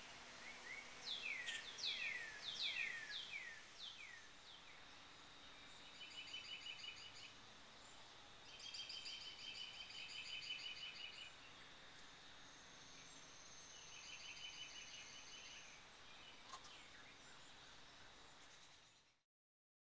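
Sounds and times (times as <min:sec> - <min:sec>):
chickadees calling: 0:00.0 - 0:04.2.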